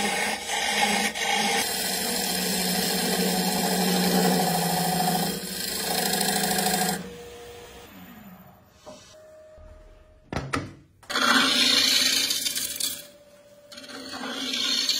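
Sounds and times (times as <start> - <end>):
chisel scraping spinning wood: 0.0 - 7.0, 11.1 - 13.1, 13.7 - 14.9
wood lathe humming: 0.0 - 8.4, 13.7 - 14.9.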